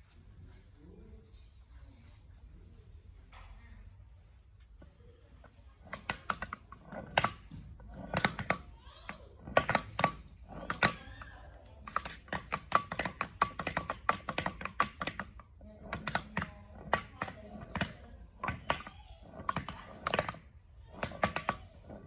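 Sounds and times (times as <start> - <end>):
gear reducer clicking and clacking: 5.8 - 22.0.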